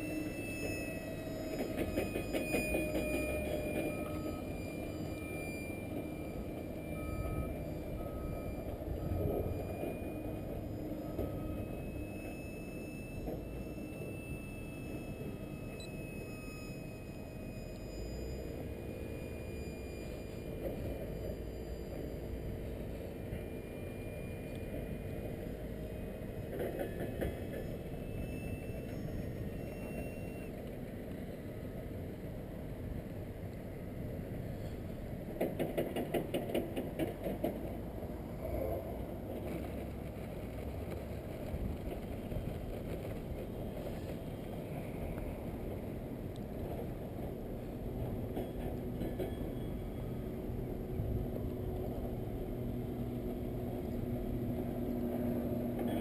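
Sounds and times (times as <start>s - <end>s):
wind rumbling on microphone: 38.4s - 48.8s.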